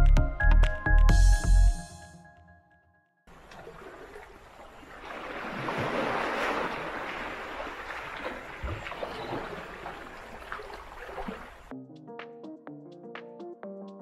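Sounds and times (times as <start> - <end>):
small waves washing on rocky shore: 3.4 - 11.7.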